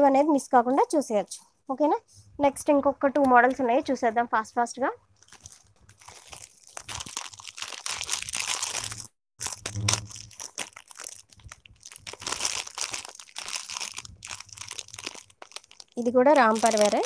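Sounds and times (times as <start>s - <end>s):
crinkling handling noise: 5.1s - 17.0s.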